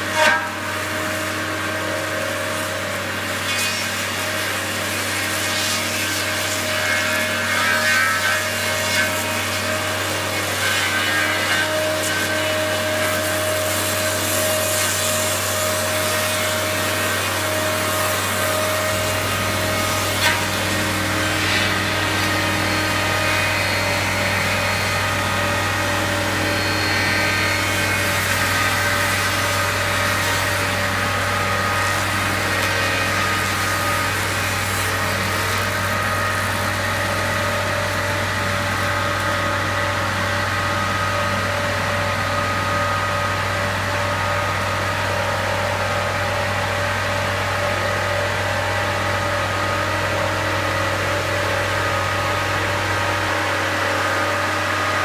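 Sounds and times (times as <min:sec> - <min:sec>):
brush cutter whining: 0:16.7 - 0:55.0
machine engine drone: 0:17.1 - 0:55.0.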